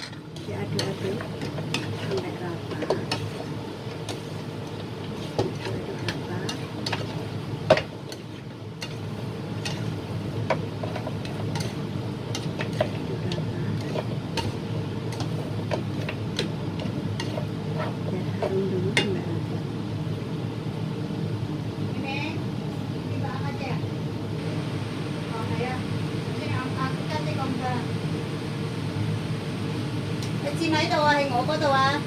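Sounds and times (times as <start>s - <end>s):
spatula scraping a metal wok: 0.0s - 19.1s
meat sizzling in a pan: 0.0s - 19.6s
steady low hum: 0.0s - 32.0s.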